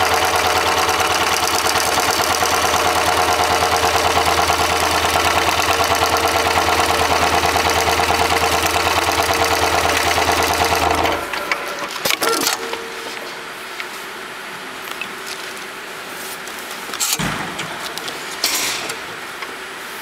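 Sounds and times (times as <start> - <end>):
sewing machine running: 0.0 - 12.6.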